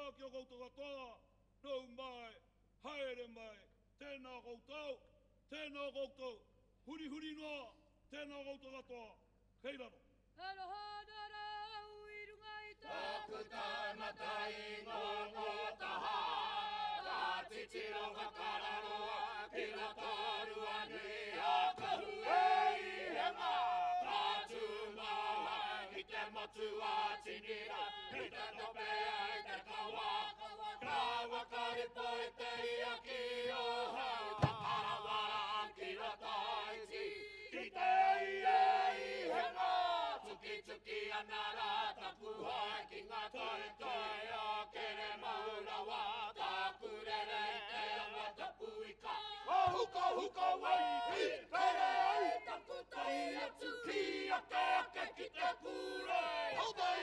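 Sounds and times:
group chanting in unison: 12.8s - 57.0s.

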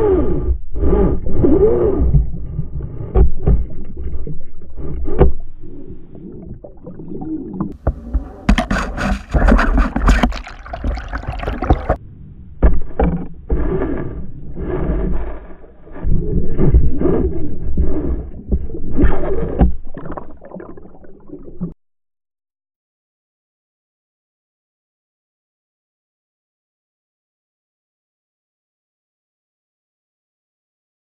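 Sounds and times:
underwater gurgling: 1.2s - 12.0s, 15.9s - 21.8s
hissing splashing burst: 8.9s - 12.0s.

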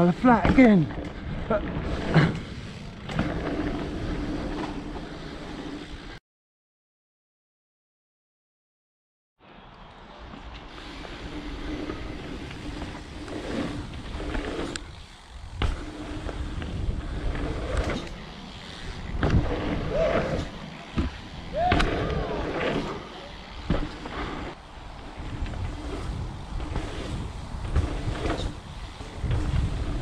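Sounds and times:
bike tyres rolling on dirt: 0.0s - 6.2s, 9.5s - 30.0s
bike landing thumps: 0.4s - 1.2s, 15.5s - 18.2s, 19.0s - 23.0s, 23.6s - 24.4s, 26.6s - 29.8s
wind on microphone: 24.9s - 30.0s.

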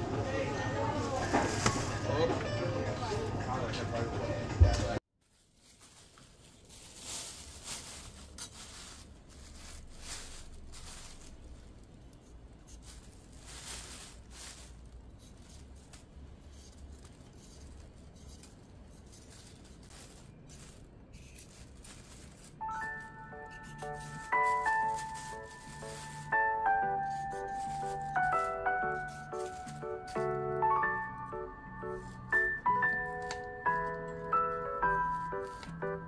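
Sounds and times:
music: 1.9s - 5.0s, 22.6s - 36.0s
faint rustles and clicks: 5.2s - 30.3s.

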